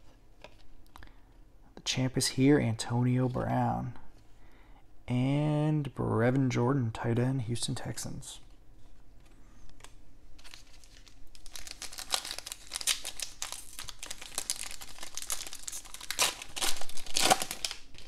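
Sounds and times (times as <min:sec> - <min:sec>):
foil wrapper tearing and crinkling: 0:10.4 - 0:18.0.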